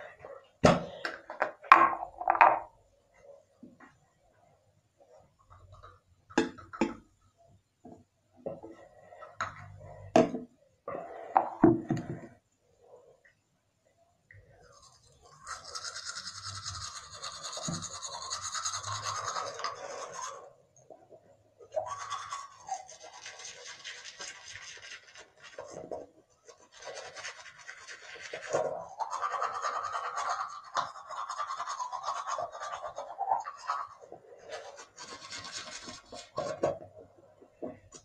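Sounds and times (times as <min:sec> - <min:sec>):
toothbrush scrubbing teeth: 0:14.5 - 0:20.5, 0:21.6 - 0:36.7.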